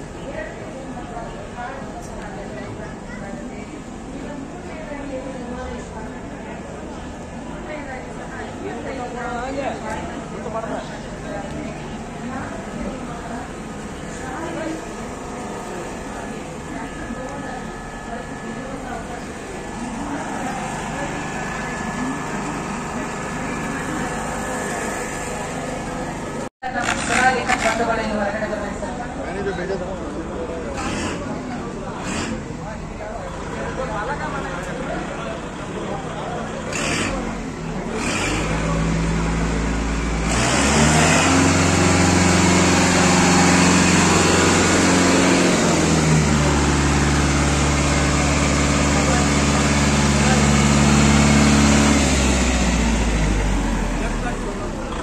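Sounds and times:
crowd chatter: 0.0 - 55.0
mechanical hum: 0.0 - 55.0
diesel tractor engine revving: 6.9 - 29.0, 30.0 - 55.0.

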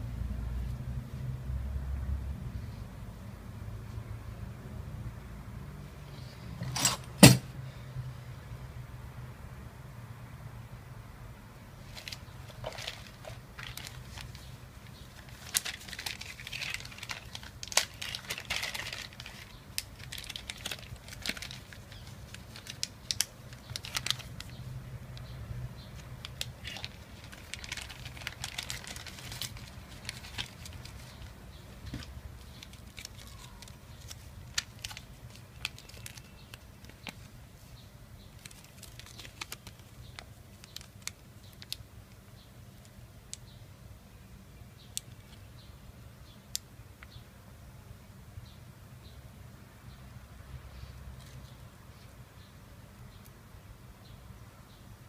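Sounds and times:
plastic bags crinkling: 11.8 - 24.7, 26.0 - 37.3, 38.3 - 41.8.

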